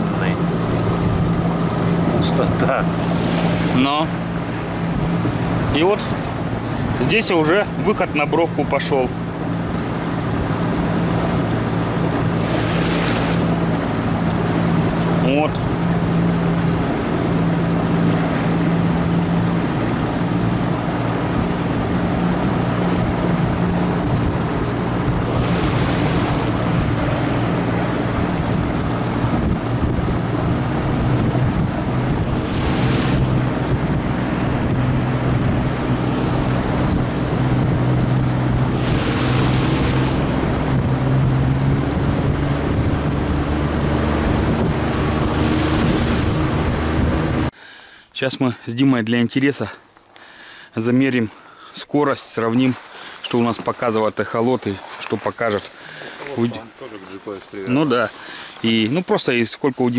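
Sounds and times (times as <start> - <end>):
outboard motor running: 0.0 - 47.6, 52.9 - 59.0
water rushing under hull: 0.0 - 47.6, 50.4 - 59.9
wind on microphone: 0.0 - 47.6.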